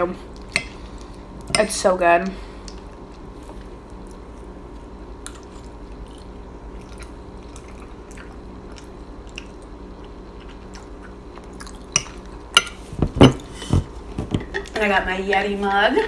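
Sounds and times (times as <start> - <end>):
low room hum: 0.0 - 16.0
person chewing: 2.6 - 12.6.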